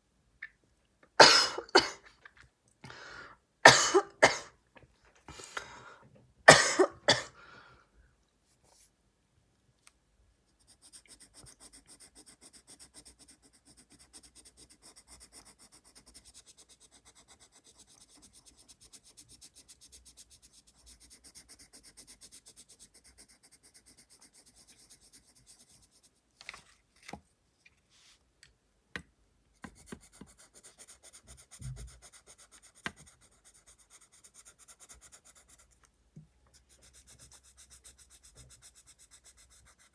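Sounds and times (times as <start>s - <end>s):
person coughing: 1.2s - 2.1s, 3.7s - 4.6s, 6.5s - 7.4s
pencil scratching on paper: 10.5s - 26.2s, 29.6s - 35.9s, 36.5s - 39.9s.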